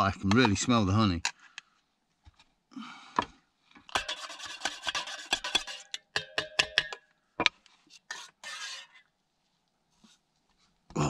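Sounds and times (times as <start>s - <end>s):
spoon clinking on cookware: 4.0s - 7.0s.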